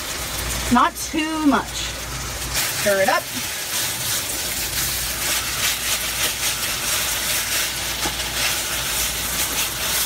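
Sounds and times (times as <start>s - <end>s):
food sizzling in a frying pan: 0.0s - 10.0s
spatula scraping a pan: 2.6s - 10.0s.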